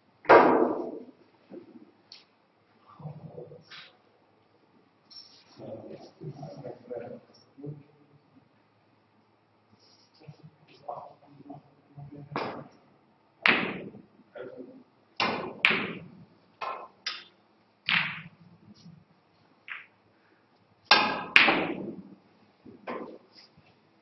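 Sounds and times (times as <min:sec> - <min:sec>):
snooker balls clacking: 0:00.2 - 0:01.8, 0:12.3 - 0:12.8, 0:13.4 - 0:14.1, 0:15.2 - 0:18.4, 0:19.6 - 0:20.0, 0:20.9 - 0:23.3.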